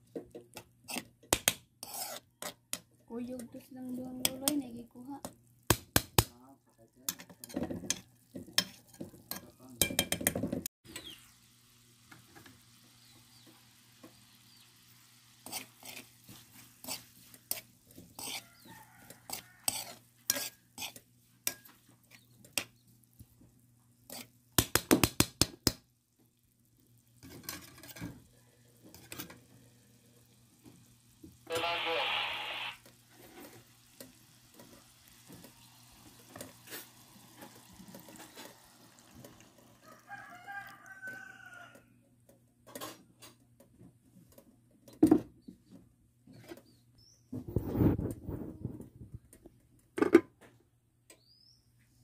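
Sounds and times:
metal spoon scraping a wok: 0:01.8 - 0:02.6, 0:07.1 - 0:09.5, 0:15.4 - 0:22.6, 0:24.1 - 0:24.4
meat sizzling: 0:11.0 - 0:21.6, 0:28.7 - 0:39.8.

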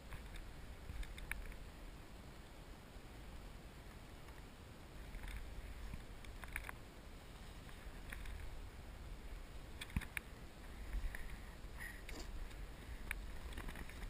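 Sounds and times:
low steady rumble: 0:00.0 - 0:14.0
fishing gear clicks and knocks: 0:12.0 - 0:14.0.

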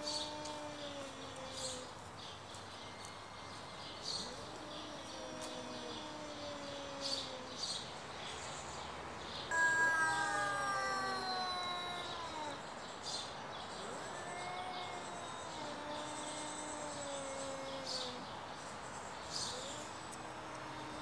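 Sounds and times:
cats yowling: 0:00.0 - 0:02.0, 0:04.1 - 0:07.7, 0:09.5 - 0:12.8, 0:13.7 - 0:18.3, 0:19.4 - 0:21.0
bird chirps: 0:09.4 - 0:13.8.

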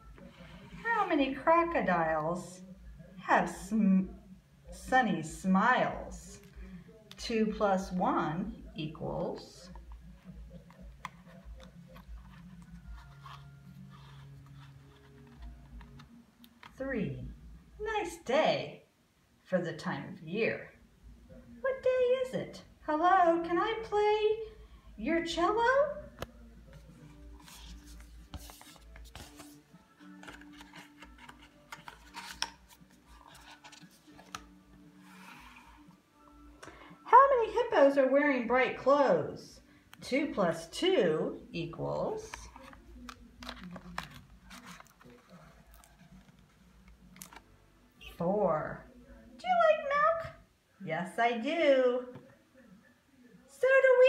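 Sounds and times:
faint music: 0:00.0 - 0:54.0
cardboard tab rustling and scraping: 0:09.7 - 0:16.8, 0:26.7 - 0:35.9, 0:42.3 - 0:47.4.

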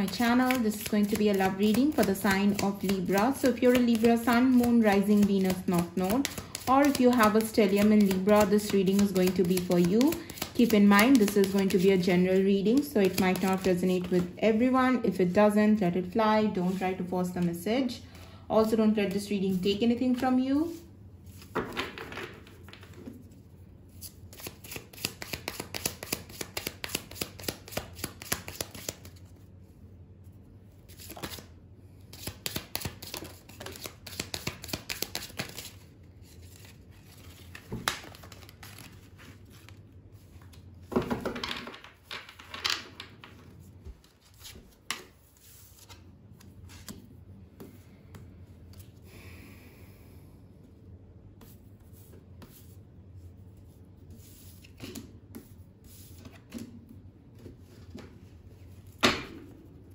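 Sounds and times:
cards being shuffled: 0:00.0 - 0:14.4, 0:24.0 - 0:29.4, 0:30.8 - 0:31.5, 0:32.1 - 0:47.8.

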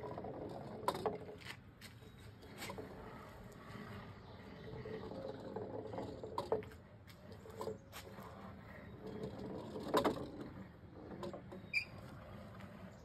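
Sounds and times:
wooden knocks and creaks: 0:00.0 - 0:03.0, 0:04.8 - 0:08.3, 0:09.0 - 0:13.0
golf ball rolling on wood: 0:00.0 - 0:13.0
high squeak: 0:11.6 - 0:12.0.

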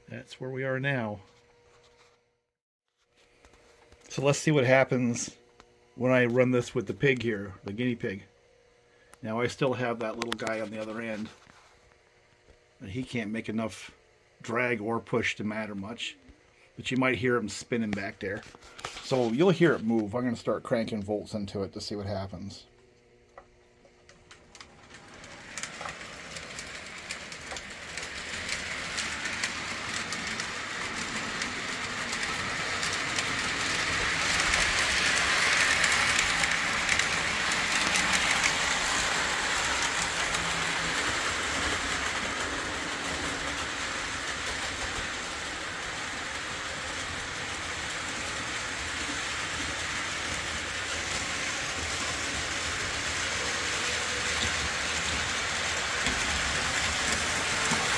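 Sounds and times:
toy train motor whir: 0:24.0 - 0:57.9
clicking clatter of train wheels: 0:24.3 - 0:57.9.

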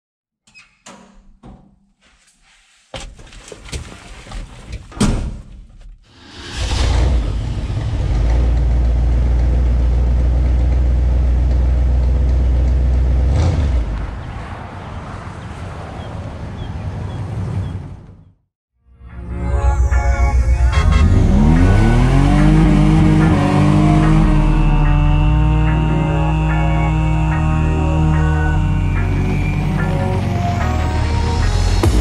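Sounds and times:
pickup engine deep rumble: 0:07.1 - 0:14.3.

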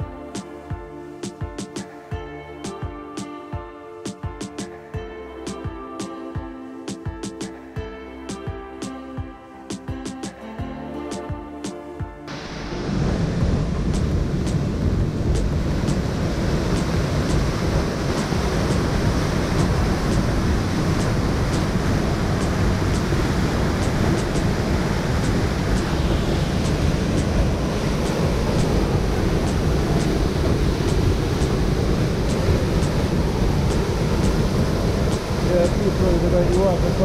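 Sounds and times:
waterfall roaring: 0:12.3 - 0:37.0.

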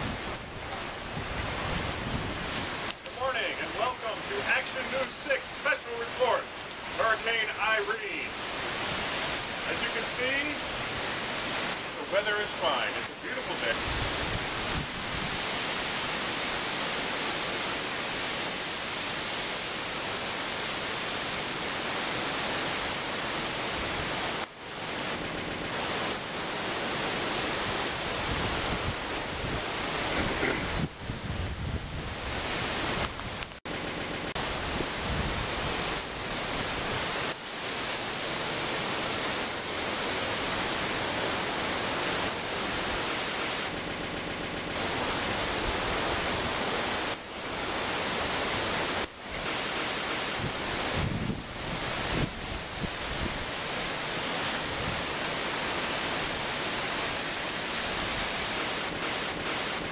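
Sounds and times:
wind buffeting microphone: 0:00.0 - 0:03.0, 0:13.8 - 0:16.1, 0:27.1 - 0:37.4, 0:50.3 - 0:54.0
wind rushing through trees: 0:00.0 - 0:59.9.

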